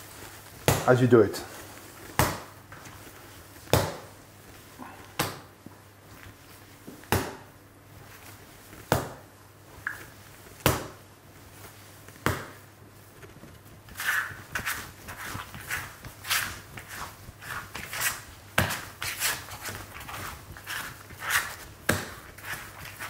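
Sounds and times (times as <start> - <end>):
dough slapped on wooden worktop: 2.2 - 2.5, 3.7 - 4.1, 7.1 - 7.5, 8.9 - 9.3, 10.6 - 11.0.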